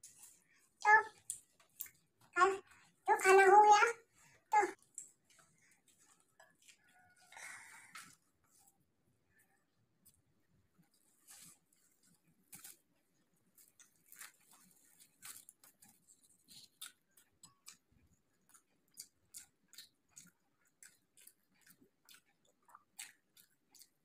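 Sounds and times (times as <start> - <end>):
chewing mouth clicks and smacks: 1.1 - 3.0, 4.8 - 8.6, 13.5 - 24.0.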